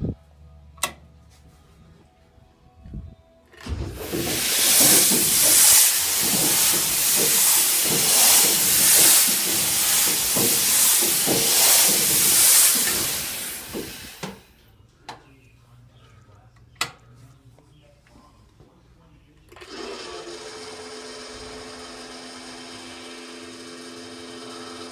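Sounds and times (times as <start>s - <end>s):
diesel engine cranking: 3.6s - 14.3s.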